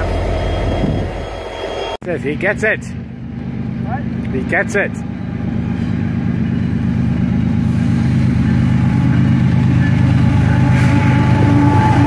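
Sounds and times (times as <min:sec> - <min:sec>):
diesel locomotive engine rumble: 0:00.0 - 0:12.0.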